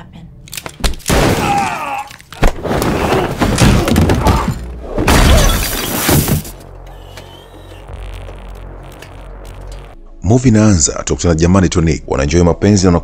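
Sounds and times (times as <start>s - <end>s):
film soundtrack music: 6.2s - 13.0s.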